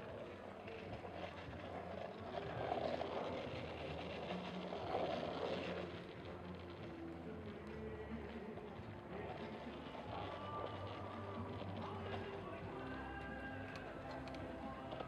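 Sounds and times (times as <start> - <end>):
street noise hiss: 0.0 - 15.0.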